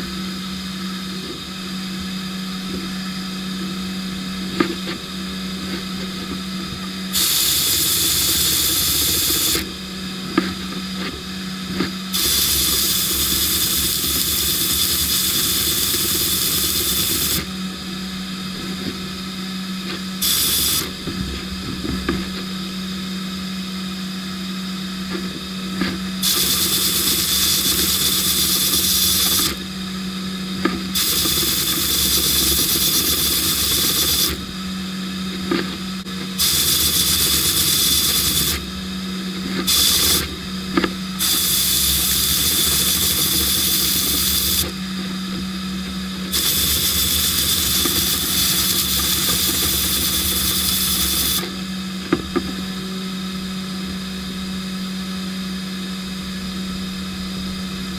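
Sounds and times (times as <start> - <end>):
steady low hum: 0.0 - 57.9
sandblasting gun hissing: 7.1 - 9.7, 12.1 - 17.5, 20.2 - 20.9, 26.2 - 29.6, 31.0 - 34.4, 36.4 - 38.6, 39.7 - 40.2, 41.2 - 44.7, 46.3 - 51.4.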